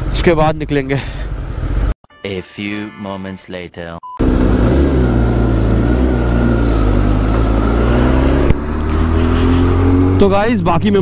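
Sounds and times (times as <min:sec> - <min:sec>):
motorcycle engine accelerating: 0:04.2 - 0:11.0.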